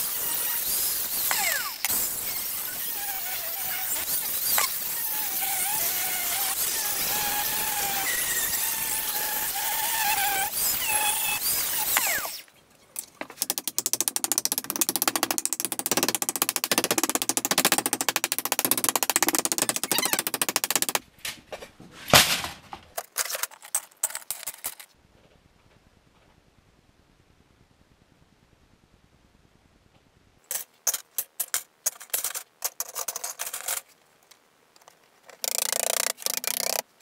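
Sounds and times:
angle grinder cutting pipe: 0.0 - 12.4.

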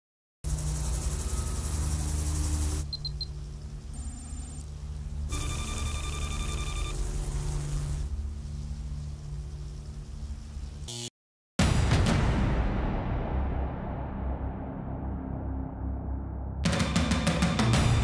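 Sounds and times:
high static hiss: 0.5 - 11.1
electronic data tone: 2.8 - 4.6, 5.3 - 7.8
quick high beeps: 4.0 - 4.6.

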